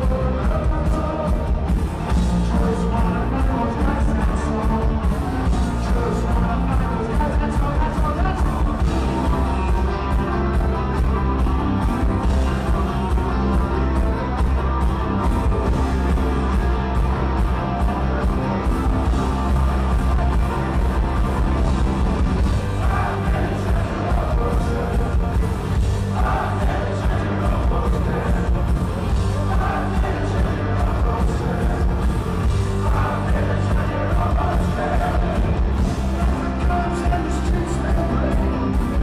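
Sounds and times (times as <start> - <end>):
bass guitar: 0.0 - 39.0
electric guitar: 0.0 - 39.0
keyboards: 0.0 - 39.0
drum beat: 21.4 - 37.3.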